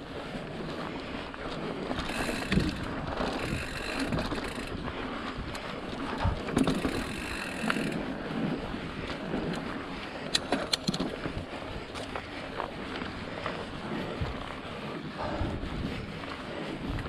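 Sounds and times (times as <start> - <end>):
wind on microphone: 0.0 - 17.0
bike chain and frame rattling: 1.7 - 8.5, 10.3 - 12.1.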